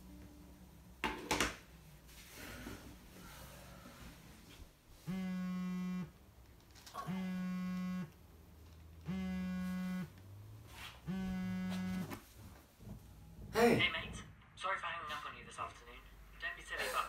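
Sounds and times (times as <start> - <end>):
phone buzzing on wooden table: 5.0 - 6.2, 6.9 - 8.2, 9.0 - 10.2, 11.0 - 12.2.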